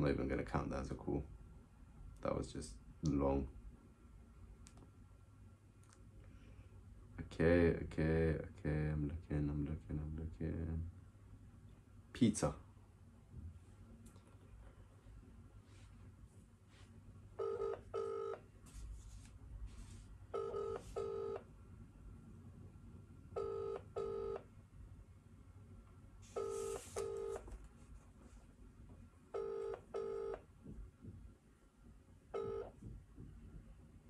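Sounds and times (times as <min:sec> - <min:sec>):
telephone ringback tone: 0:17.4 - 0:18.4, 0:20.4 - 0:21.4, 0:23.4 - 0:24.4, 0:26.4 - 0:27.4, 0:29.4 - 0:30.4, 0:32.4 - 0:32.7.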